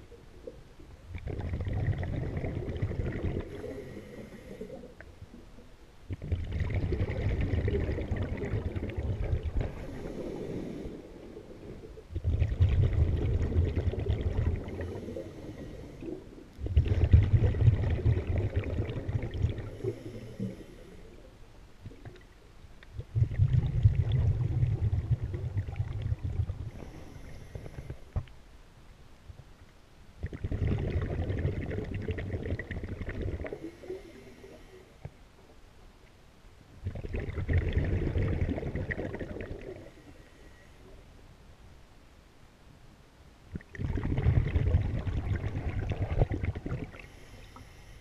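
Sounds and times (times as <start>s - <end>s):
diver exhaling bubbles underwater: 1.1s - 5.0s, 6.1s - 20.7s, 23.0s - 28.1s, 30.2s - 34.6s, 36.8s - 40.0s, 43.6s - 47.3s.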